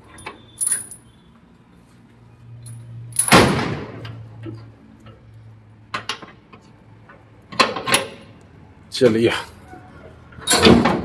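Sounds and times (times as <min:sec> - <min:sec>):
metal chains clanking: 0:00.0 - 0:01.2, 0:10.4 - 0:11.0.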